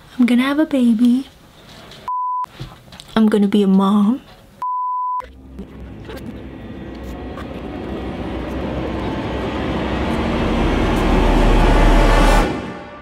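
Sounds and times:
tape rewind rush: 5.2s - 12.9s
deep rumble: 5.2s - 13.0s.

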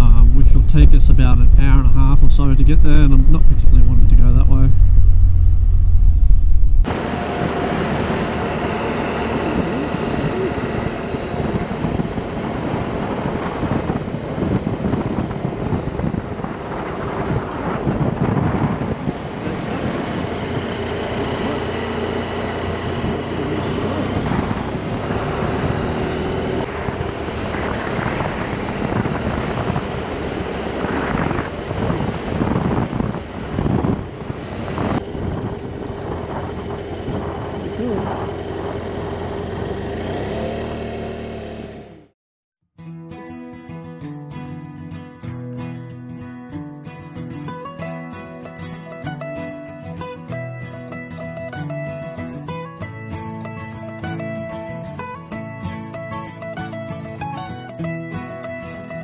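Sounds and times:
wind noise on microphone: 0.0s - 40.6s
motorcycle engine running: 0.0s - 42.1s.

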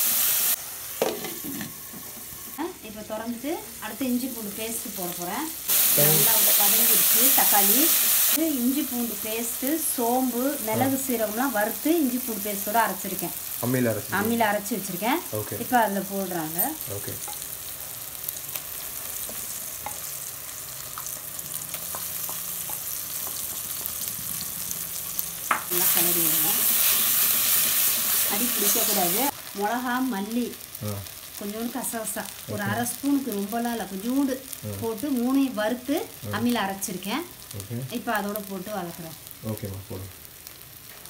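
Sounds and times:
loud hiss of sizzling: 0.0s - 40.8s
masala sizzling in oil: 0.0s - 41.0s.

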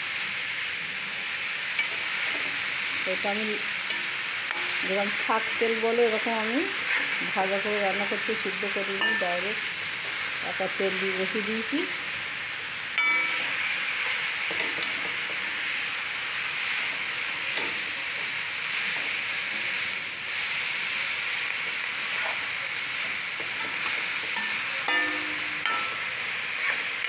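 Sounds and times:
greens sizzling in oil: 0.0s - 27.0s
spatula scraping pan: 3.6s - 5.6s, 6.2s - 8.2s, 22.0s - 27.0s.

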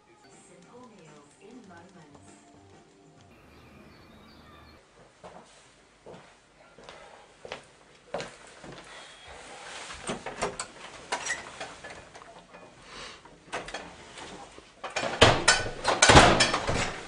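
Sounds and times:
footsteps: 2.2s - 10.2s
door knocks and rattles: 15.0s - 17.0s.

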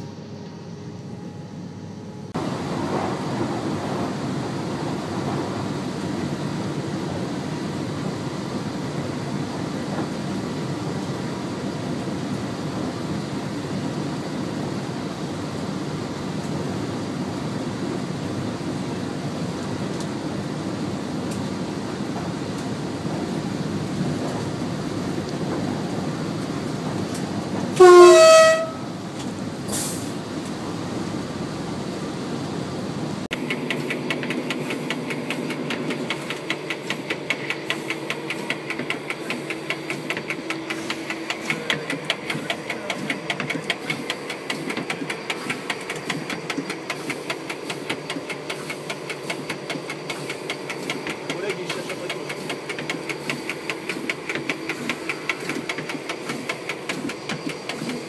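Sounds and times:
train running rumble: 0.0s - 58.0s
two-note train horn: 27.8s - 29.0s.

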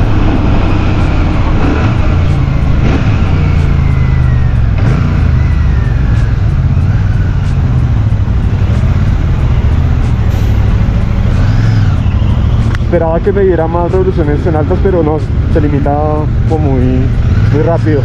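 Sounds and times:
motorcycle engine accelerating: 0.0s - 18.0s.

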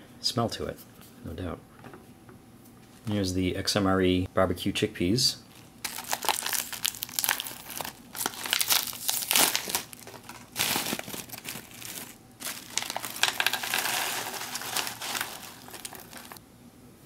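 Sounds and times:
foil pouch crinkling: 5.5s - 16.4s
chickpeas rattling into plastic tray: 10.0s - 16.4s.

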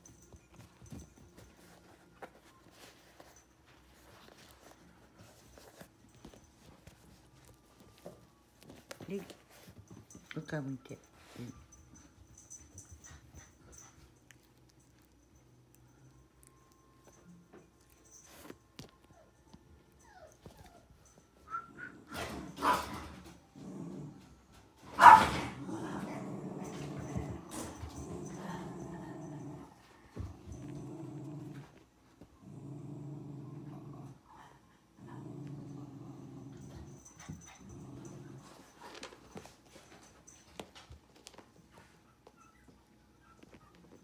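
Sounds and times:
puppy scratching at towel: 1.3s - 10.3s
puppy whining: 16.2s - 24.5s, 41.2s - 44.0s
puppy growling: 21.6s - 24.3s, 25.4s - 36.8s, 37.5s - 38.6s
puppy barking: 22.6s - 23.1s, 25.0s - 25.6s.

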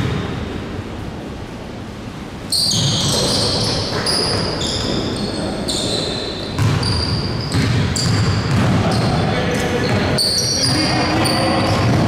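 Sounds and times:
sneakers squeaking: 2.4s - 12.0s
basketball bouncing on court: 5.9s - 12.0s.

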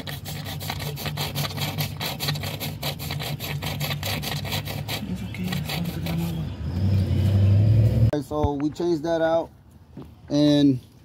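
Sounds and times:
hand rubbing rubber hose: 0.0s - 7.0s.

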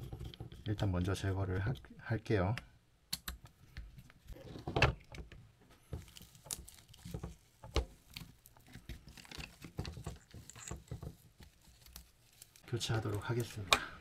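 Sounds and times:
fingers rustling fabric strap: 5.8s - 13.6s.

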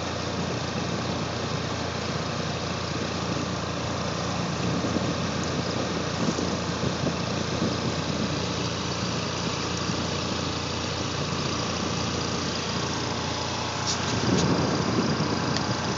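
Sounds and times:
engine rumble: 0.0s - 15.9s
broad hiss: 12.8s - 15.9s.

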